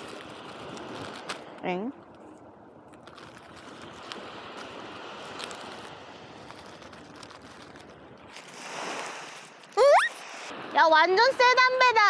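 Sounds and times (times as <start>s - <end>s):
sea surf washing on beach: 3.3s - 12.0s.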